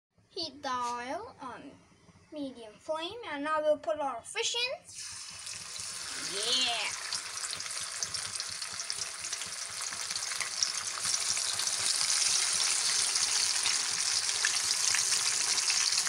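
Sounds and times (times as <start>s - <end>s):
fish deep-frying in hot oil: 4.9s - 16.0s
small pops and crackles: 7.0s - 13.8s.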